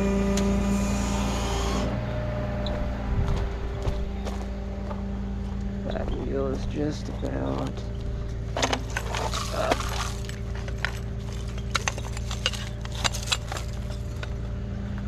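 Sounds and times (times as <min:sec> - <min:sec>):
truck engine idling: 0:00.0 - 0:15.0
glass and metal debris clinking: 0:08.6 - 0:14.3.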